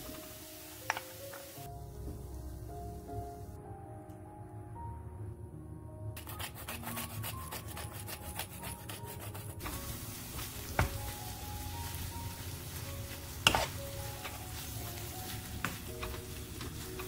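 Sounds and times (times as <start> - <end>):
food sizzling: 0.0 - 3.6, 9.4 - 17.0
spatula stirring in wok: 6.2 - 17.0.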